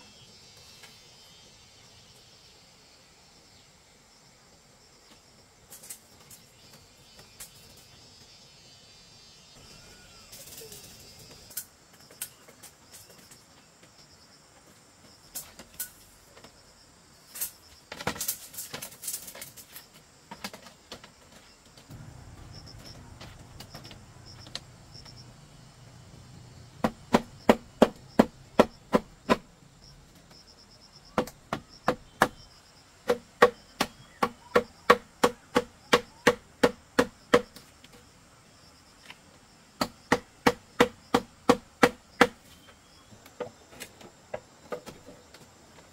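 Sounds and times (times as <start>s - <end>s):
insects buzzing: 0.0s - 45.9s
tool striking bamboo: 26.8s - 29.5s, 33.0s - 37.7s, 39.8s - 42.5s.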